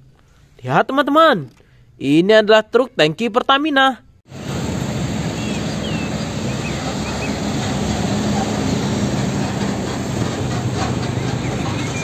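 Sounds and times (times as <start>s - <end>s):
truck engine and road noise: 4.3s - 12.0s.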